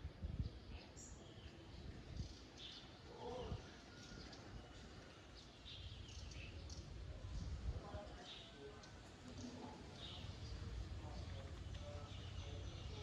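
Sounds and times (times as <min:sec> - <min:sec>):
low rumbling background noise: 0:04.4 - 0:13.0.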